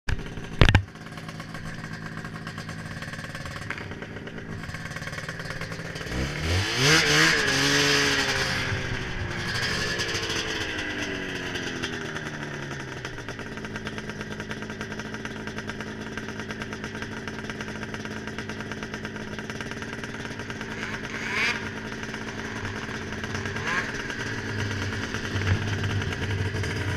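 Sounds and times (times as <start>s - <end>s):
snowmobile engine revving: 3.4s - 14.8s, 19.4s - 26.9s.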